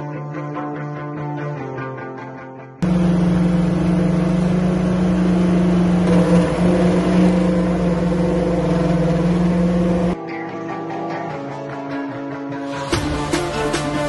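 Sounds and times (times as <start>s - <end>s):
curb machine mechanical drone: 2.8s - 10.2s.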